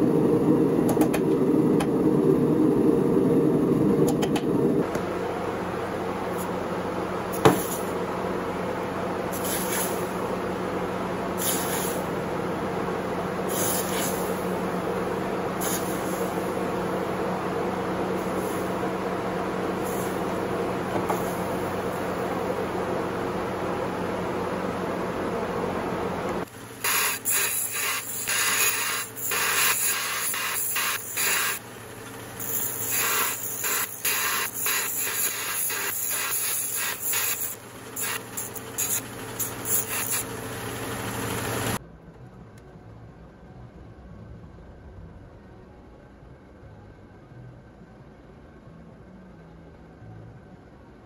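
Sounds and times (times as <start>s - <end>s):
steady rushing noise: 0.0s - 5.2s
steady hum: 0.0s - 51.0s
steel grinding hiss: 9.3s - 10.2s, 11.4s - 12.1s, 13.5s - 14.5s, 15.6s - 16.6s, 18.2s - 18.8s, 26.5s - 41.8s
belt grinder humming: 26.2s - 41.8s
hot metal sizzling in water: 26.8s - 31.6s, 32.4s - 41.8s.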